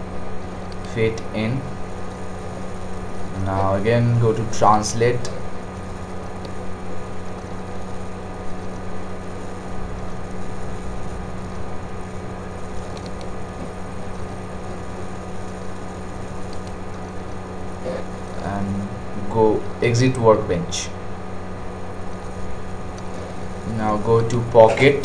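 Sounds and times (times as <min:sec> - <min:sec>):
low electrical hum: 0:00.0 - 0:25.0
even hiss: 0:07.2 - 0:21.0
faint clicks: 0:12.9 - 0:13.7, 0:16.5 - 0:17.4.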